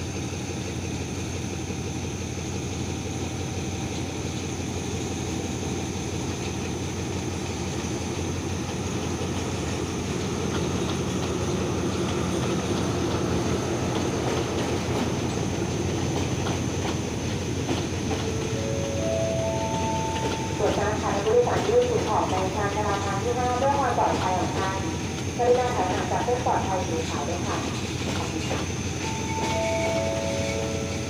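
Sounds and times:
diesel locomotive engine rumble: 0.0 - 31.0
wheels clicking over rail joints: 7.7 - 25.3, 27.6 - 31.0.

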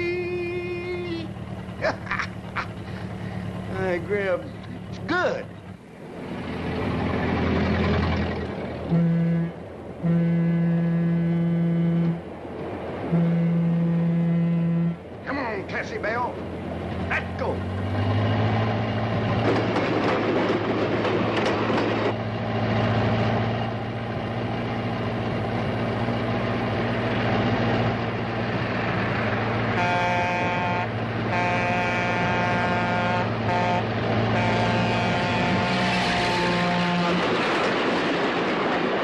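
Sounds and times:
low rumble of moving train: 0.0 - 39.0
train horn blasts: 8.9 - 12.4, 13.0 - 15.2, 29.7 - 37.4.

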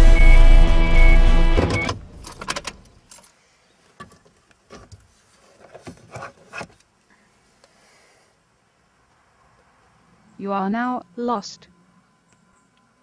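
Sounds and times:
music: 0.0 - 1.9.

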